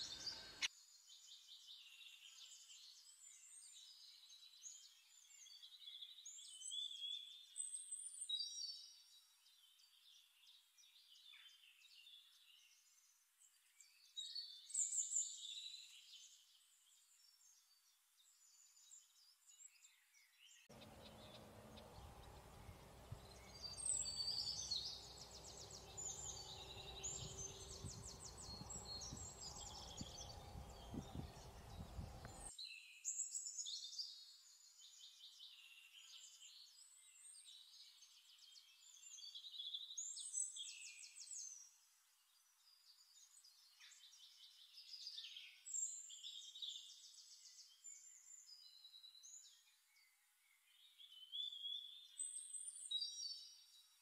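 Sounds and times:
songbirds chirping faintly: 0.0 - 54.0
low background rumble: 20.8 - 32.5.

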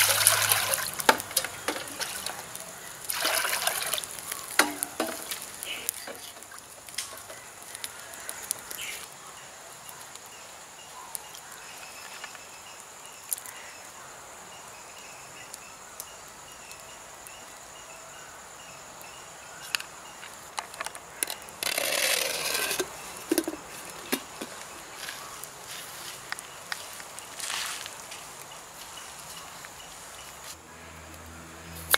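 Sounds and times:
wood fire crackling: 0.0 - 13.7, 15.2 - 17.7, 18.3 - 31.9
insect chirring: 0.0 - 31.9
clay lid scraping on pot: 21.2 - 23.6.

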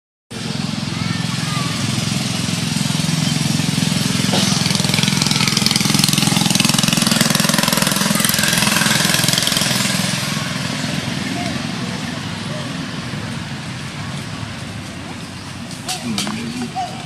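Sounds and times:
small engine idling: 0.3 - 17.0.

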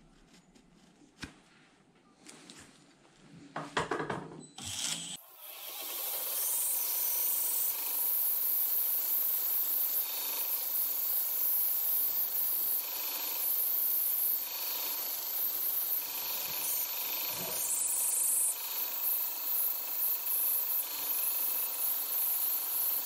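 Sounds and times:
belt grinder grinding steel blade: 4.6 - 23.0.

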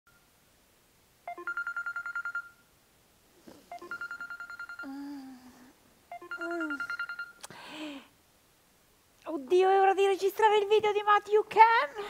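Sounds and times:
phone alarm beeping: 1.3 - 2.7, 3.7 - 5.0, 6.1 - 7.4
sleepy groan: 4.8 - 5.8.

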